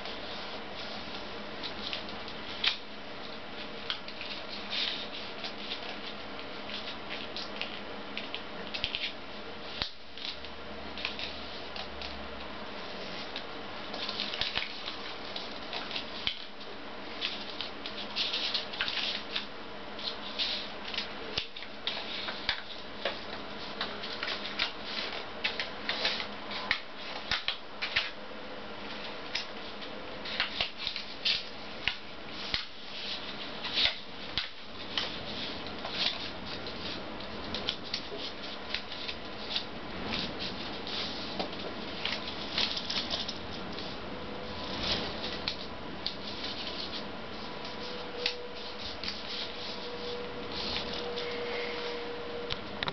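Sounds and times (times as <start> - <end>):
paper crinkling and rustling: 0.0 - 12.2, 12.8 - 28.2, 28.8 - 51.5
paper fold snaps: 13.3 - 16.6, 17.2 - 28.2, 29.0 - 43.9.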